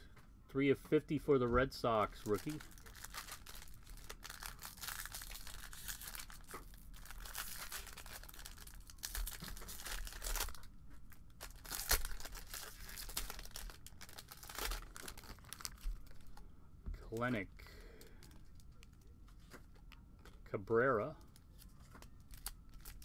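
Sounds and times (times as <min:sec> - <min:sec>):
foil wrapper crinkling and tearing: 0:02.1 - 0:16.4, 0:21.2 - 0:23.0.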